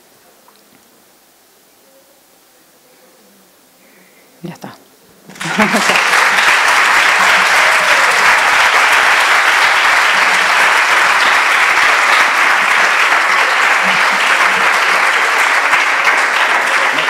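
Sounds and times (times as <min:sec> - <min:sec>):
large audience clapping: 0:05.3 - 0:17.0.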